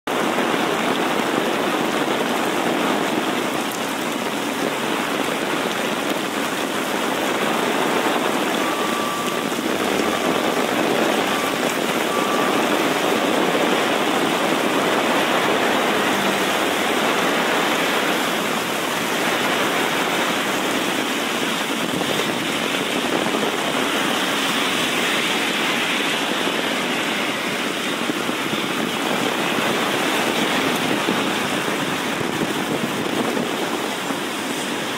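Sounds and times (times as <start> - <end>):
heavy rain on street: 0.0 - 34.9
short high beeps: 8.3 - 14.0.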